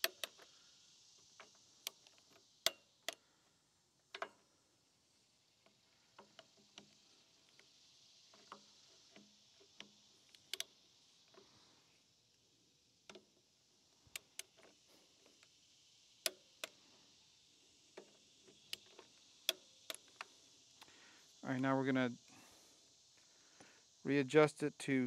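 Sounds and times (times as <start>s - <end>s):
torque wrench clicks: 0.0s - 0.5s, 1.1s - 3.2s, 4.1s - 4.4s, 5.6s - 11.5s, 14.0s - 15.6s, 16.2s - 16.8s, 17.8s - 20.9s.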